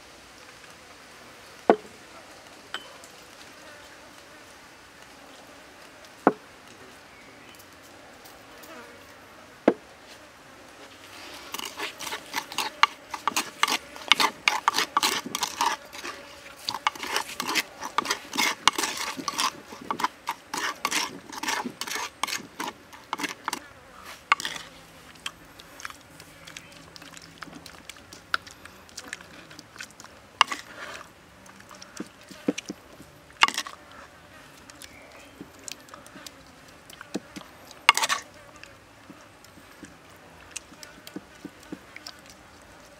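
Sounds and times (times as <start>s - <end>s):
spoon scraping in wooden mortar: 11.1s - 42.9s.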